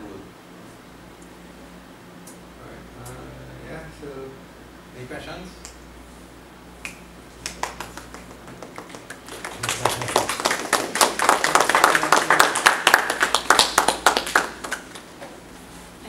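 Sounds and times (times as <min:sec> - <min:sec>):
audience applauding: 0:07.4 - 0:15.1.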